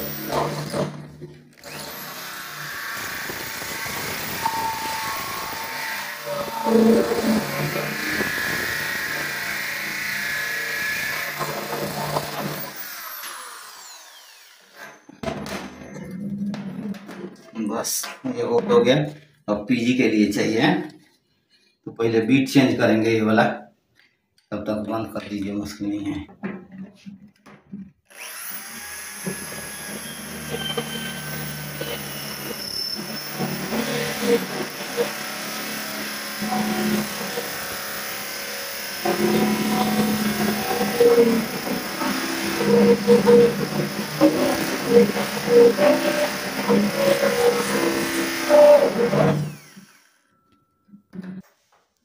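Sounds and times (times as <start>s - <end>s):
drill motor winding down: 0.0s - 15.1s, 28.1s - 50.2s
power drill cutting steel: 0.0s - 15.2s, 28.1s - 50.3s.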